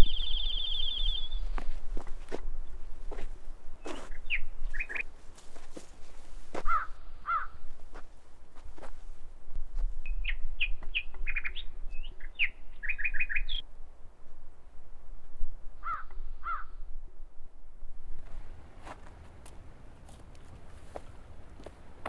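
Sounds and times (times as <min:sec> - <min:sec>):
songbird chirping: 0:00.0 - 0:03.2, 0:03.8 - 0:05.1, 0:10.0 - 0:13.7
footsteps on dirt path: 0:01.0 - 0:11.3, 0:18.1 - 0:22.0
crow cawing: 0:06.6 - 0:07.6, 0:15.8 - 0:16.8.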